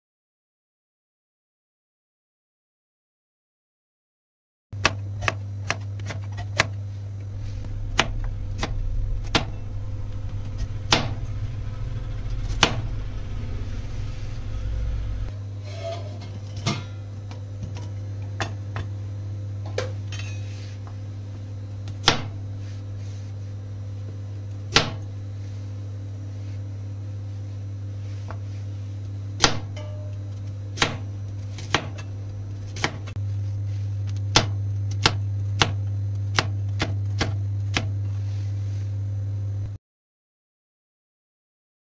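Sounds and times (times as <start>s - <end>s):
knife chopping on plastic board: 4.8s - 6.8s, 32.8s - 33.1s, 34.3s - 37.9s
steady low hum: 4.8s - 39.8s.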